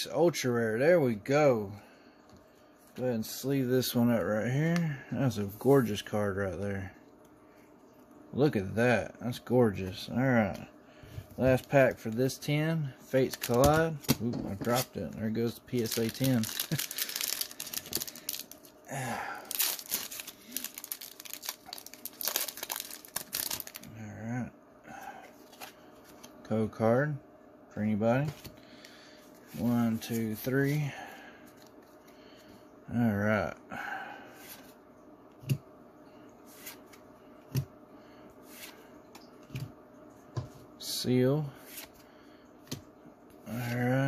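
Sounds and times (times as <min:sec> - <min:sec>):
foil wrapper crinkling: 0:13.2 - 0:13.9, 0:14.6 - 0:23.9
cards being handled: 0:13.2 - 0:18.7, 0:19.4 - 0:23.9, 0:36.5 - 0:37.0.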